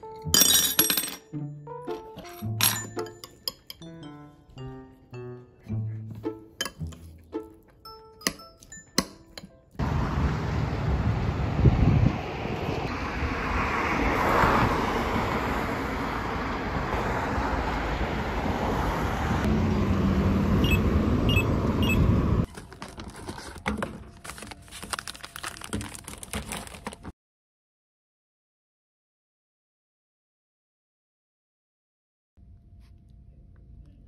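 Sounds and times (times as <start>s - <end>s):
cars passing with road hiss: 9.8s - 22.5s
crosswalk button chirps: 20.6s - 22.1s.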